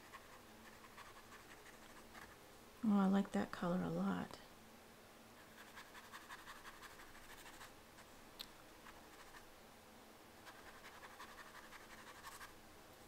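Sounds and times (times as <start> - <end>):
paintbrush scrubbing on paper: 0.0 - 2.4, 5.4 - 8.1, 8.9 - 9.4, 10.4 - 12.5.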